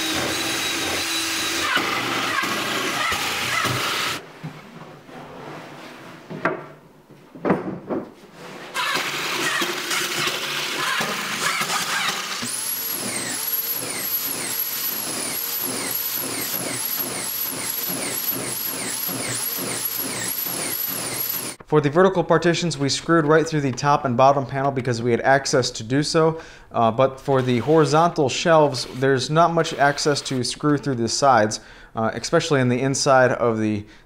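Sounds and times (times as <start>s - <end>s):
cordless drill driving screws: 0.0s - 4.2s, 8.8s - 21.6s.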